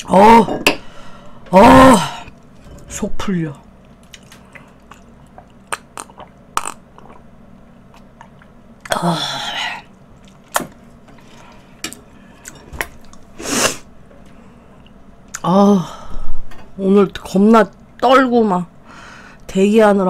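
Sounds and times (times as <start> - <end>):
mouth smacks and clicks: 4.1 - 7.2.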